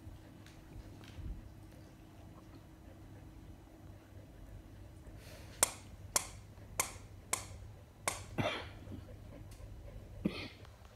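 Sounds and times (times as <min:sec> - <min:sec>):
sharp clicks: 0:05.6 - 0:08.3.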